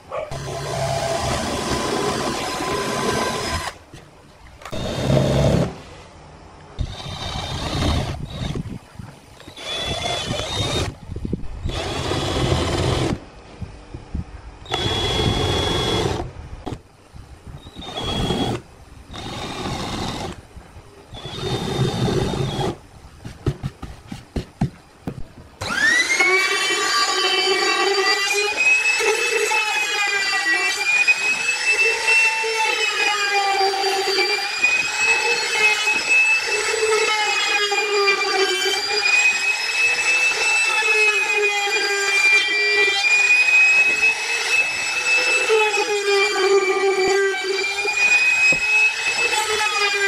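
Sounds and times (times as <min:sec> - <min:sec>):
cordless drill boring into wood: 0:00.3 - 0:03.8, 0:04.7 - 0:05.7, 0:06.8 - 0:08.6, 0:09.4 - 0:11.0, 0:11.6 - 0:13.2, 0:14.7 - 0:16.8, 0:17.6 - 0:20.4, 0:21.1 - 0:22.8, 0:25.6 - 0:50.0
trim router whine: 0:04.7 - 0:05.7, 0:09.4 - 0:11.0, 0:11.6 - 0:13.2, 0:14.7 - 0:16.8, 0:17.6 - 0:20.4, 0:21.1 - 0:22.8, 0:25.6 - 0:50.0.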